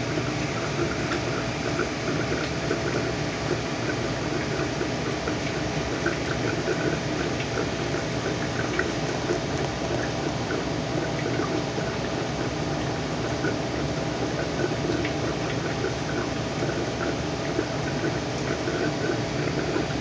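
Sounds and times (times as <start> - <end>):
aquarium water bubbling: 0.0 - 20.0
small bubble pops: 0.1 - 13.6.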